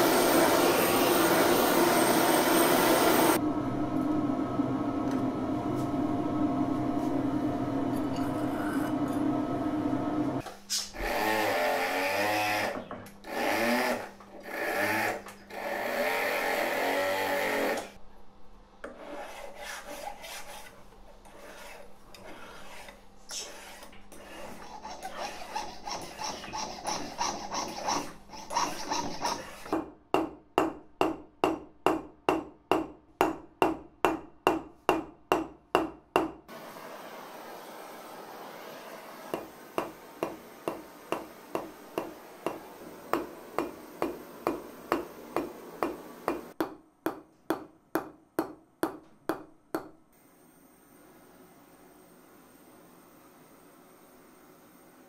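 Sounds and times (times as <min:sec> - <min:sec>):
hand file rasping on metal: 0:18.9 - 0:29.8.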